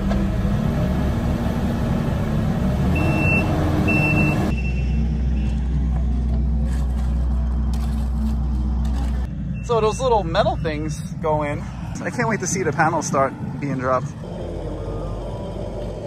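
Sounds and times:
diesel engine running: 0.0s - 16.0s
backup alarm beeps: 3.0s - 5.6s.

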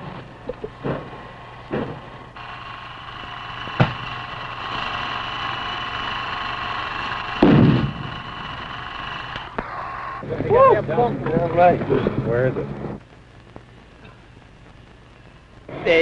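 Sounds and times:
faint high hum: 0.0s - 16.0s
film hiss: 0.0s - 16.0s
explosion blast: 3.6s - 4.9s, 7.4s - 8.6s
gunshot cracks: 3.8s - 4.0s, 7.4s - 8.1s.

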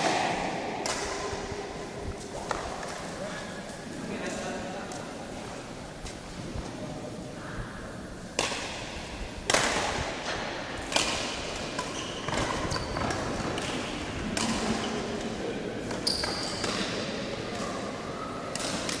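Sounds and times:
racquets hitting shuttlecock: 0.0s - 1.5s, 8.3s - 17.1s, 18.5s - 19.0s.

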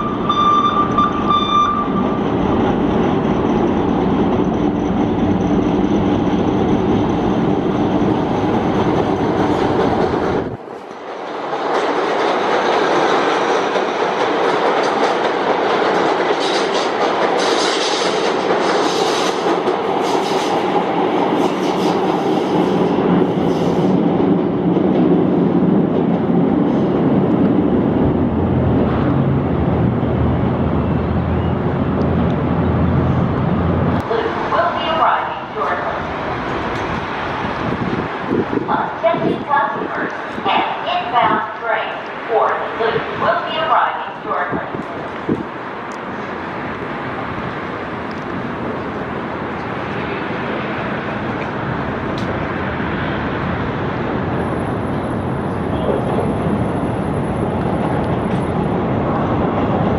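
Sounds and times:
elevated train rumbling: 0.0s - 59.9s
train wheels hissing and screeching: 17.4s - 20.7s, 21.3s - 24.0s.

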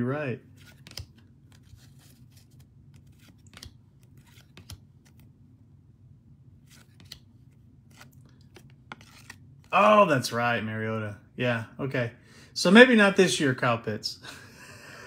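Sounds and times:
cards flipped by hand: 0.5s - 5.4s, 6.6s - 9.7s.

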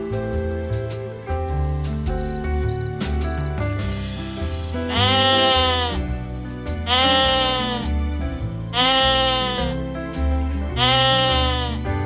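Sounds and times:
background music: 0.0s - 12.0s
animal bleating: 4.8s - 6.1s, 6.8s - 8.0s, 8.7s - 9.8s, 10.7s - 11.9s.

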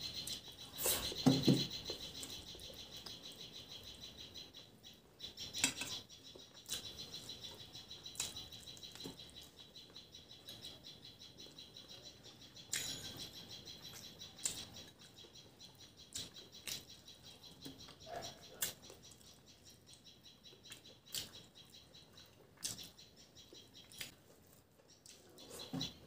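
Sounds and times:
steady high chirping: 0.0s - 26.0s
chewing and lip smacks: 18.6s - 20.0s, 20.7s - 21.6s, 22.3s - 23.0s, 23.6s - 25.3s.

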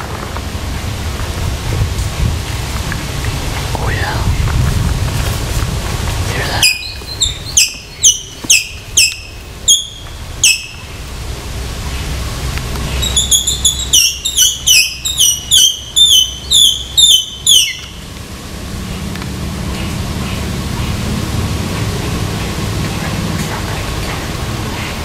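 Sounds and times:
squirrel barking: 6.4s - 11.1s, 12.9s - 18.1s.

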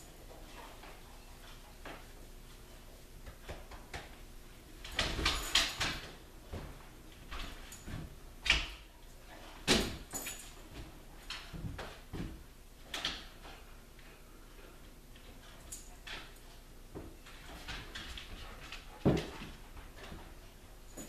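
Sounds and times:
dog moving on hard floor: 15.4s - 21.0s.

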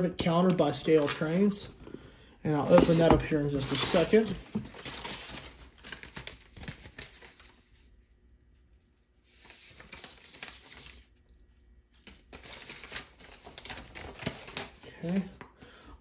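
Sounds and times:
packing paper rustling: 2.5s - 7.9s, 9.3s - 11.1s, 12.0s - 15.6s.

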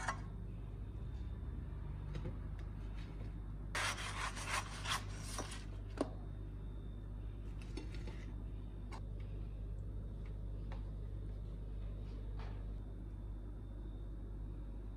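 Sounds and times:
low hum: 4.9s - 14.9s.

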